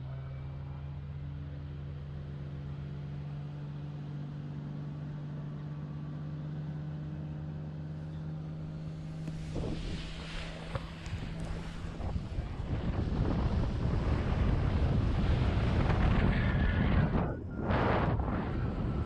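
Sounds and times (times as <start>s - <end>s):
boat engine humming: 0.0s - 19.0s
wind rustling on microphone: 8.7s - 19.0s.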